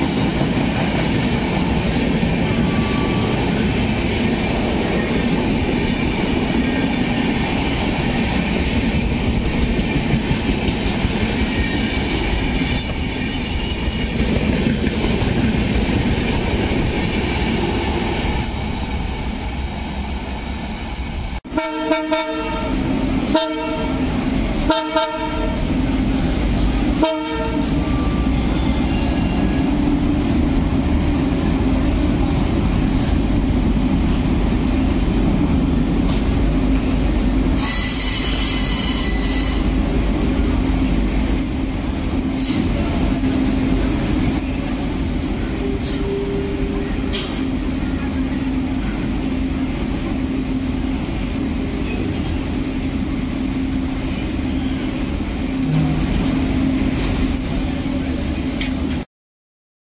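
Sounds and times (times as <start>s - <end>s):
diesel locomotive engine rumble: 0.0s - 59.0s
train wheels squealing: 2.7s - 3.4s, 27.8s - 29.6s, 37.2s - 39.7s.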